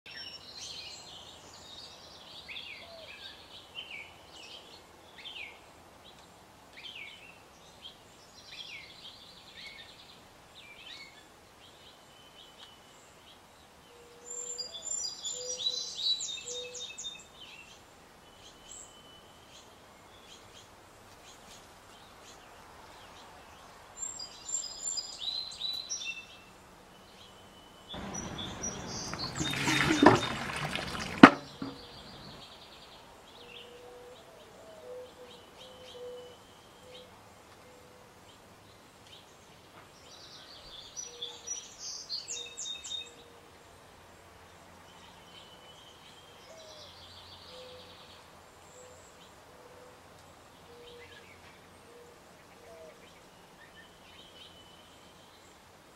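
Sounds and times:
small birds chirping: 0:00.1 - 0:55.8
water pouring with a splash: 0:28.0 - 0:32.4
sharp bamboo knock: 0:31.2 - 0:31.9.

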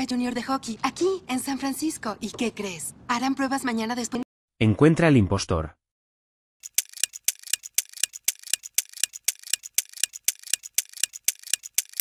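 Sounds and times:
clock ticking: 0:06.6 - 0:12.0.

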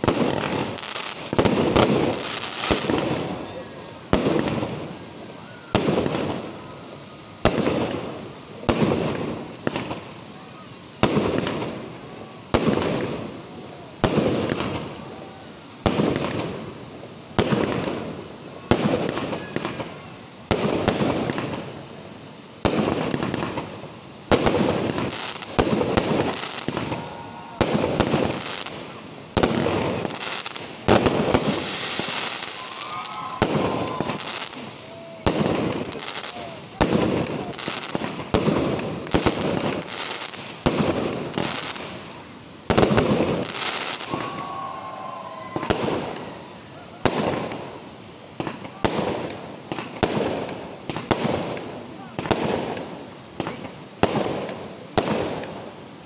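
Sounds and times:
firework crackling hiss: 0:00.0 - 0:56.0
firework shells bursting: 0:22.6 - 0:44.6.

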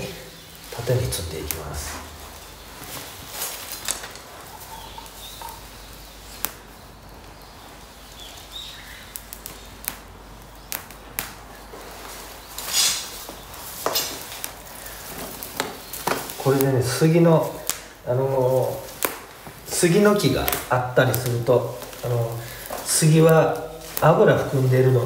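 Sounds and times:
twig fire crackling and popping: 0:00.0 - 0:25.0
twigs being handled: 0:00.0 - 0:25.0
faint bird chirps: 0:04.3 - 0:10.8.

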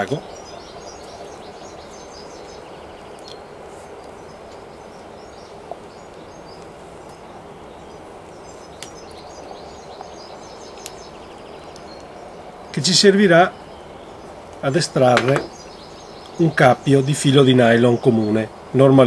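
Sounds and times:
faint bird chirps: 0:00.0 - 0:18.4
outdoor background noise: 0:00.0 - 0:19.0.

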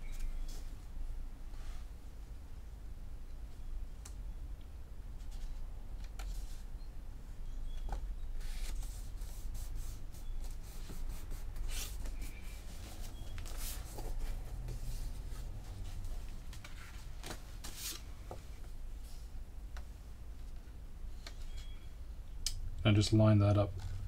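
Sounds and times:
paper rustling: 0:07.9 - 0:18.2.

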